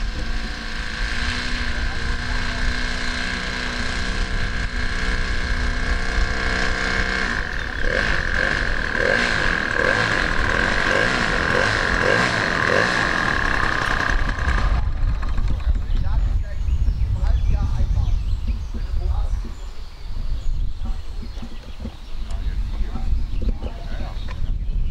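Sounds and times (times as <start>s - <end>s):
model plane petrol engine: 0.0s - 16.2s
wind rumbling on microphone: 0.0s - 24.9s.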